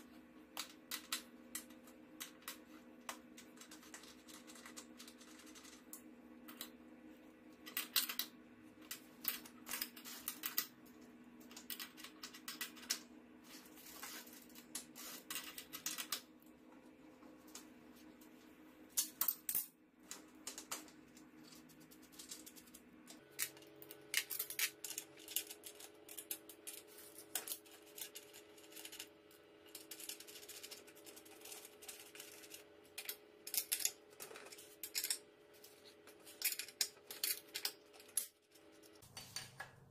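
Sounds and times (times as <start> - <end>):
faint steady hum: 0.0 - 39.9
metal parts clicking and clinking: 19.0 - 29.1, 29.7 - 39.7.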